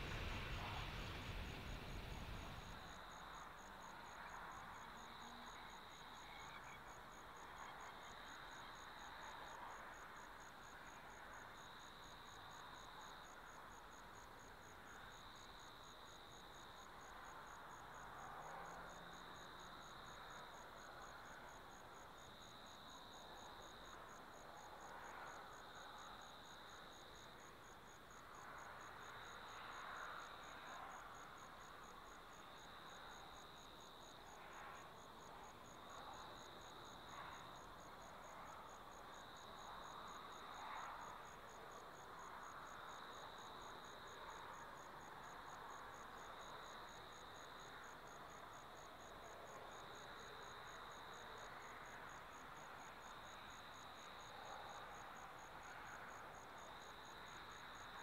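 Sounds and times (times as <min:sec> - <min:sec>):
cricket lower trill: 0:00.0 - 0:03.0
soft background hiss: 0:00.0 - 0:58.0.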